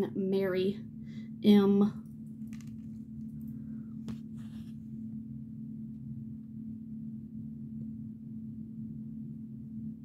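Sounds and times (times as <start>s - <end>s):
low hum: 0.0s - 10.0s
soft rustle: 4.0s - 5.0s.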